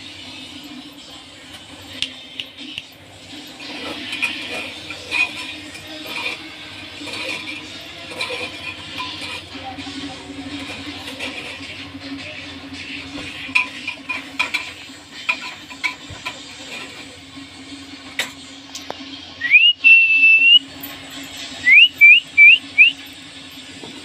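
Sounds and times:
loud rising whistle: 0:19.4 - 0:20.7, 0:21.6 - 0:23.0
short rising whistles: 0:19.4 - 0:20.7, 0:21.6 - 0:23.0.

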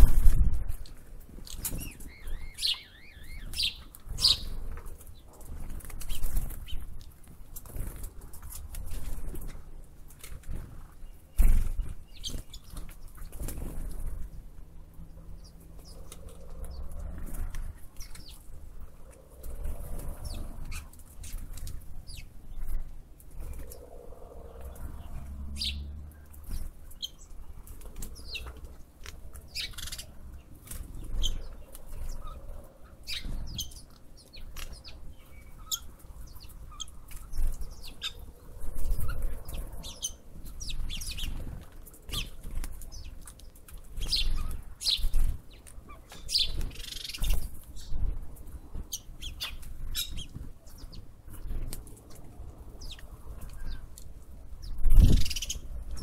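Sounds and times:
birds chirping: 0:01.4 - 0:07.0, 0:07.6 - 0:56.0
low uneven rumble: 0:13.3 - 0:33.5.

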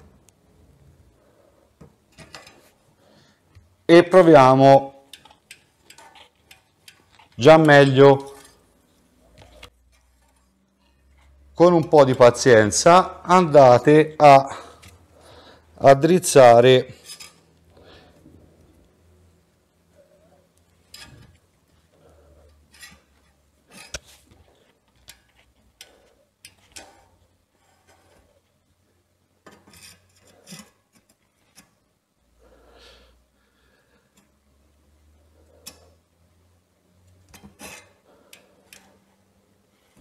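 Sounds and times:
metal clicks and scrapes: 0:05.0 - 0:11.4, 0:16.9 - 0:17.6, 0:20.6 - 0:28.5, 0:29.4 - 0:31.8, 0:35.5 - 0:36.0, 0:37.3 - 0:39.0.

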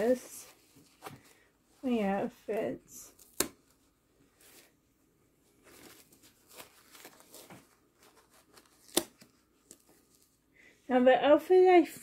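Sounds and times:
diaper rustling and crinkling: 0:05.4 - 0:10.4.

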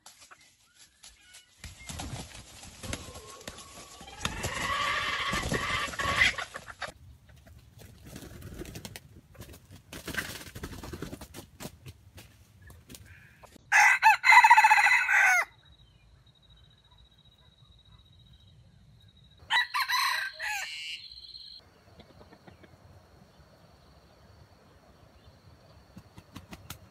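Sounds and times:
rooster crowing: 0:13.7 - 0:15.6, 0:19.4 - 0:21.5.

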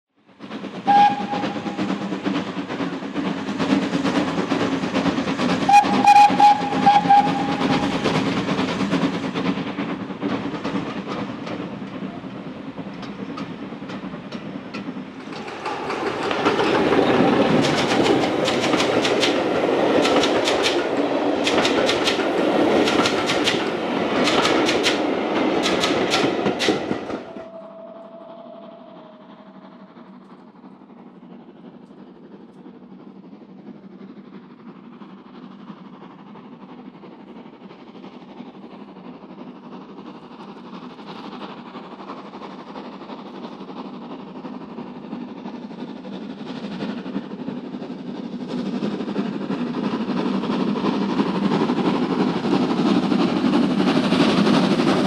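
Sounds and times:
steam train running: 0:00.2 - 0:55.0
wheels clicking on rails: 0:00.3 - 0:28.1
steam train whistle: 0:00.8 - 0:01.9, 0:05.6 - 0:08.0, 0:27.2 - 0:30.0.

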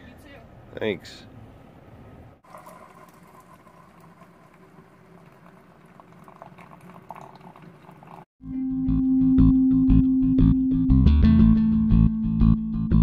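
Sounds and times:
faint outdoor background: 0:00.0 - 0:02.5
coffee maker bubbling: 0:02.4 - 0:08.3
coffee pouring into a mug: 0:02.4 - 0:08.3.

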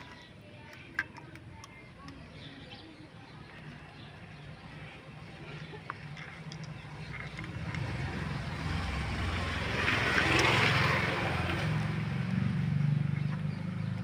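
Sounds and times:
rush of passing vehicle: 0:07.4 - 0:14.0.

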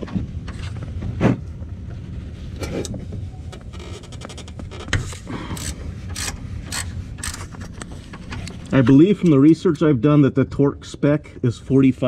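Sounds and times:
steady low hum: 0:00.0 - 0:12.0
ratchet metal clicks and knocks: 0:05.6 - 0:08.5.

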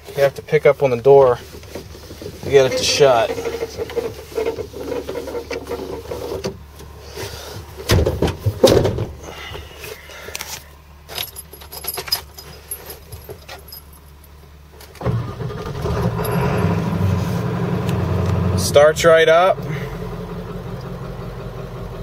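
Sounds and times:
diesel engine starting and idling: 0:00.0 - 0:11.1, 0:13.8 - 0:22.0
keys jangling: 0:11.1 - 0:14.4, 0:16.2 - 0:16.6.

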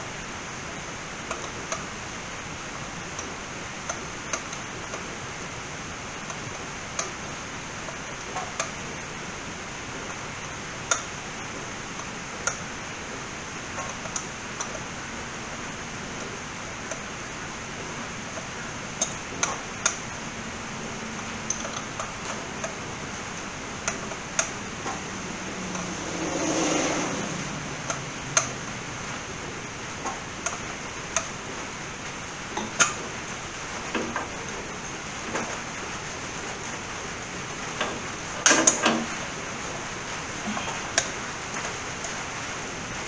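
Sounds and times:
rushing swell with falling hum: 0:24.6 - 0:29.9.

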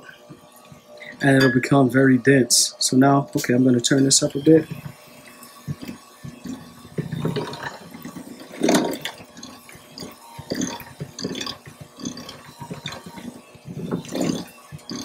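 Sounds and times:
electric hand mixer: 0:03.4 - 0:15.0.

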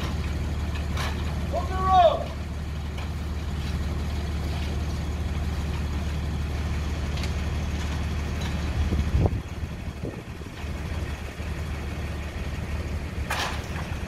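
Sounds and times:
metal ladder clunks: 0:00.0 - 0:01.4, 0:13.3 - 0:14.0
vehicle engine idling: 0:00.0 - 0:14.0.

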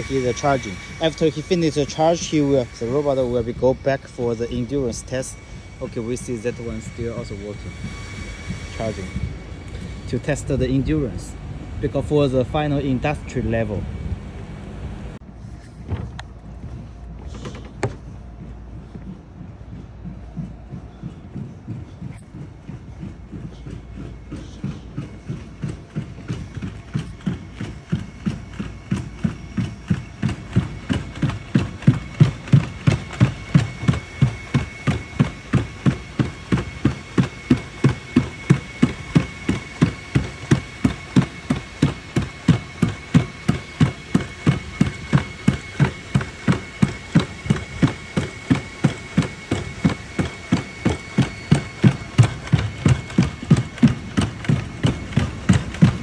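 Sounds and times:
steady high whine: 0:00.0 - 0:56.0.

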